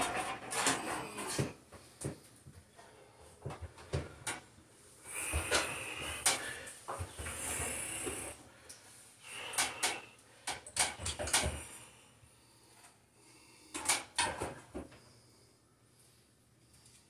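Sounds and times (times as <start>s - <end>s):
plastic parts clicking and knocking: 9.5s - 11.6s, 13.7s - 14.9s.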